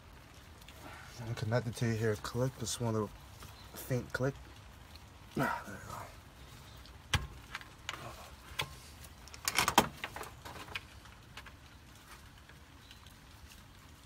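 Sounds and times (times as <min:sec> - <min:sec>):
clicks and knocks of plastic parts: 0:07.1 - 0:11.6.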